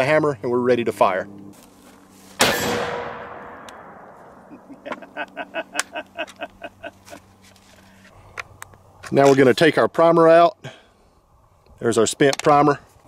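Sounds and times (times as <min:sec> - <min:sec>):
rifle shot boom: 0:02.4 - 0:04.5
man laughing: 0:04.5 - 0:07.3.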